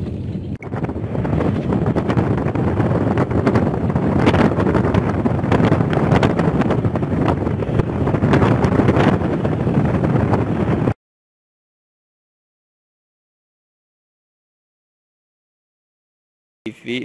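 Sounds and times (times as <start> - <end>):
vehicle road noise: 0.0 - 11.0
wind buffeting microphone: 0.0 - 11.0
wind rush: 0.0 - 11.0.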